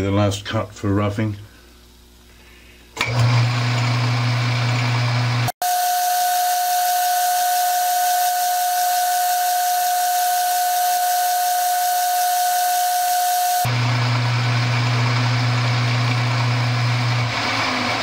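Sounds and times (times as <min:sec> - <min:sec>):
lathe motor hum: 0:03.0 - 0:18.0
lathe high whine over hiss: 0:05.1 - 0:17.2.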